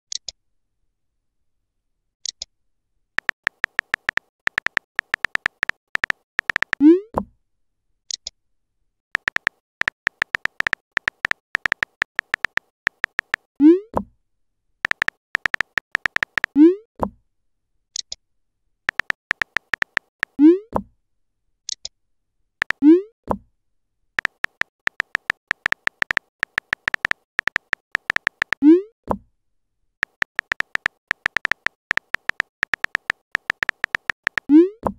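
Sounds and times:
phone keyboard taps: 0:03.2 - 0:06.8, 0:09.2 - 0:13.5, 0:14.9 - 0:16.5, 0:18.9 - 0:20.4, 0:24.2 - 0:28.6, 0:30.0 - 0:34.5.

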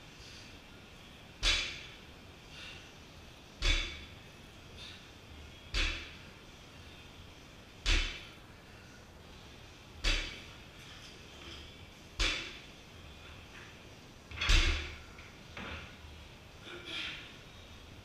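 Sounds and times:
barbell thudding on wooden platform: 0:07.9 - 0:08.3, 0:14.3 - 0:15.0.

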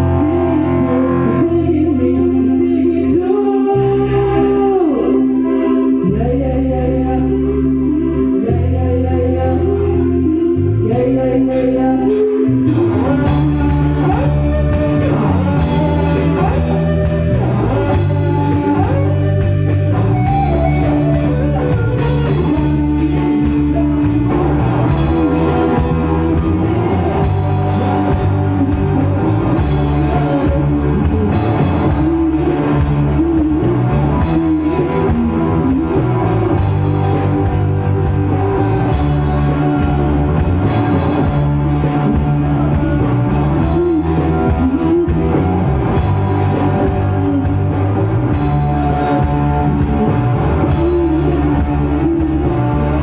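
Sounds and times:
bass guitar: 0:00.0 - 0:53.0
electric guitars: 0:00.0 - 0:53.0
drum kit beat: 0:13.3 - 0:53.0.

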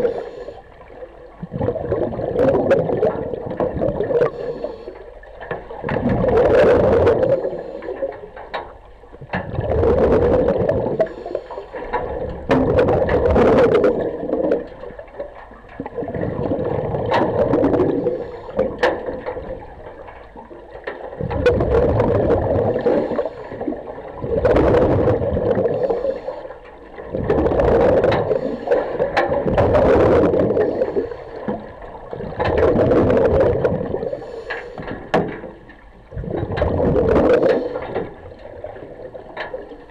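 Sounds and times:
scuba regulator breathing underwater: 0:00.0 - 0:00.7, 0:04.0 - 0:05.1, 0:07.1 - 0:08.1, 0:10.5 - 0:11.8, 0:17.6 - 0:18.8, 0:22.5 - 0:23.8, 0:25.0 - 0:26.6, 0:28.2 - 0:29.2, 0:30.3 - 0:31.6, 0:33.9 - 0:34.9, 0:37.2 - 0:38.1.

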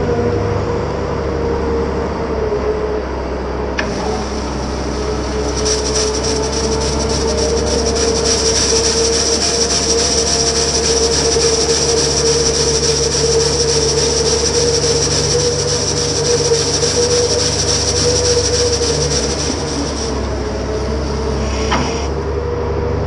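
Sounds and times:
diesel engine under load: 0:00.0 - 0:23.0
steady whine: 0:00.0 - 0:23.0
rotary brush scrubbing road: 0:03.8 - 0:22.1.

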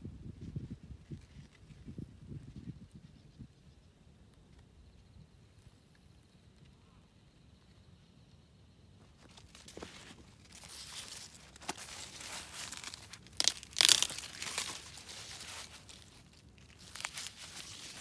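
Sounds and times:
corn leaves rustling: 0:09.0 - 0:18.0
corn ear snapping off stalk: 0:09.4 - 0:18.0.

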